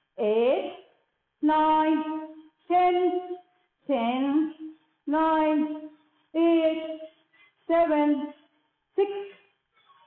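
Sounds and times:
woman counting in sing-song voice: 0.2 - 7.1, 7.7 - 8.4, 9.0 - 9.5.

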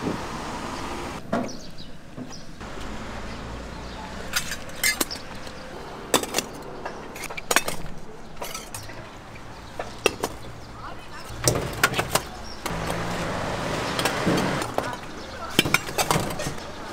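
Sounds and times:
bowls and utensils clinking: 6.1 - 9.0, 14.0 - 16.8.

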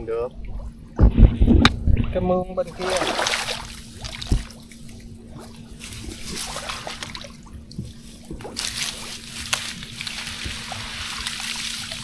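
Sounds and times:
water sloshing and splashing: 0.3 - 12.0
dull thump: 4.2 - 4.6.

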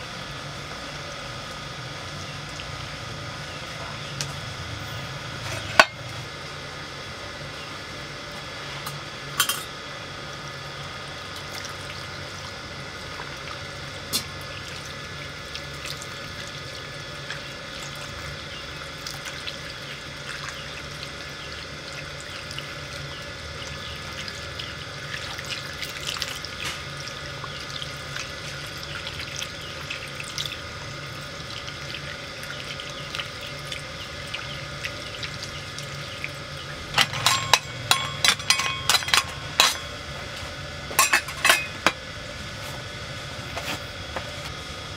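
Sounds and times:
water pouring and splashing: 13.0 - 18.3, 23.6 - 39.8
sharp metallic clinks: 37.0 - 39.8.

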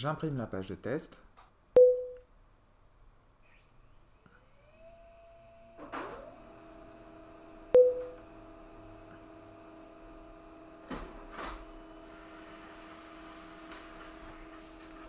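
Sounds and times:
printer paper rustling: 10.9 - 15.0.

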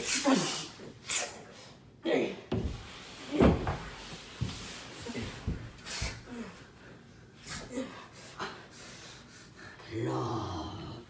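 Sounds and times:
rustling movement: 2.6 - 5.9
person breathing: 7.7 - 10.0.

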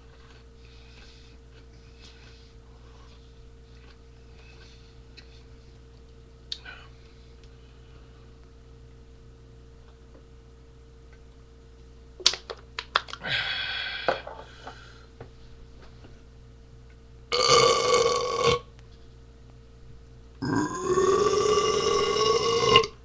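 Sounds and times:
man belching loudly: 17.3 - 18.7, 20.4 - 23.0.

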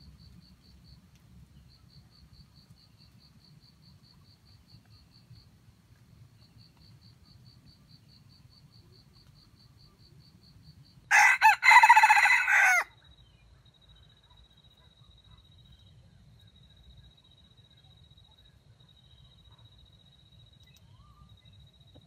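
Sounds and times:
rooster crowing: 11.1 - 12.9.

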